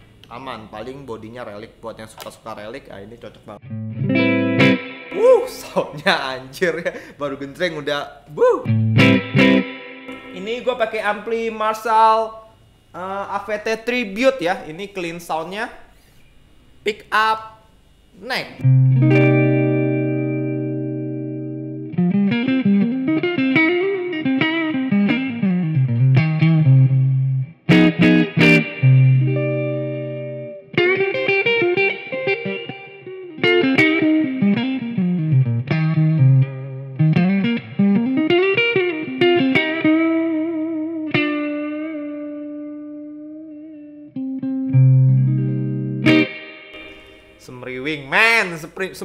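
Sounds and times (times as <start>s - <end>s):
clean electric guitar: 3.6s - 6.0s, 8.3s - 11.2s, 18.6s - 47.5s.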